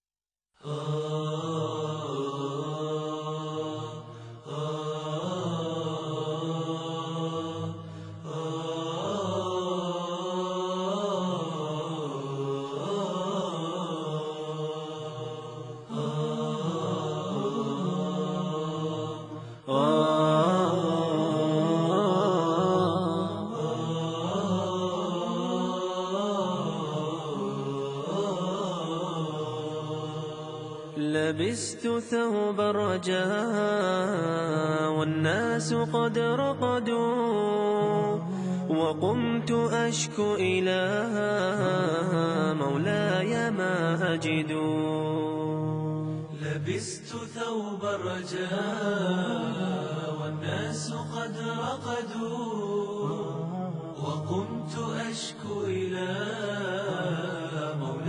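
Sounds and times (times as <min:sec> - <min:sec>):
sustained chanting voices: 0:00.6 - 0:58.0
voices chanting: 0:08.3 - 0:30.7.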